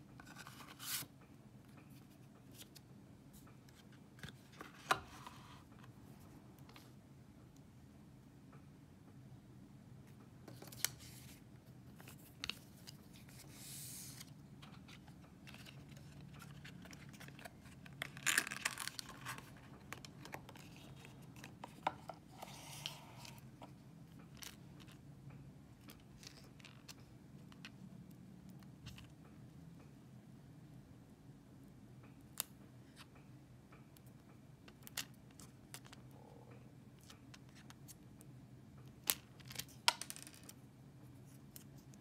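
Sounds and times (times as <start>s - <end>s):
card rustling and scraping: 0.2s - 1.1s, 3.7s - 6.0s, 10.5s - 23.7s.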